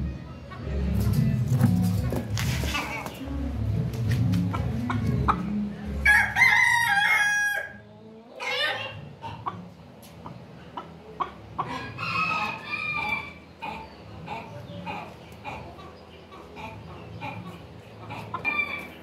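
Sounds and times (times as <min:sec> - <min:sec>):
rooster crowing: 0:06.0 - 0:07.8, 0:11.7 - 0:13.4
rooster clucking calls: 0:08.4 - 0:09.8, 0:10.8 - 0:19.0.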